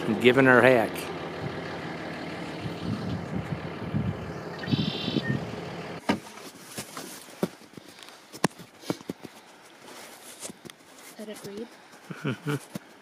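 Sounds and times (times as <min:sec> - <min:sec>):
engine idling: 0:00.0 - 0:06.0
high-pitched chirp: 0:04.3 - 0:05.5.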